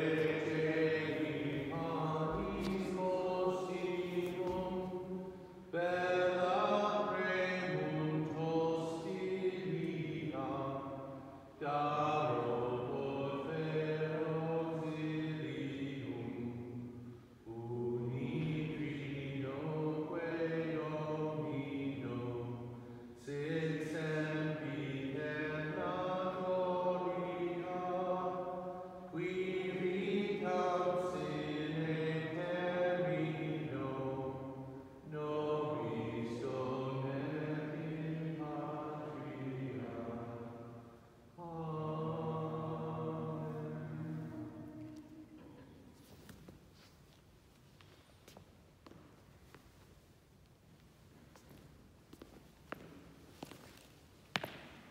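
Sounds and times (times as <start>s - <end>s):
slow sacred chant: 0.0s - 50.0s.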